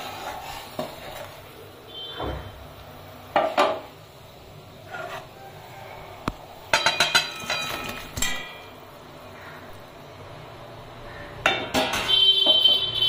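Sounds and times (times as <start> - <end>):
metal utensils clinking and scraping: 6.7 - 8.8.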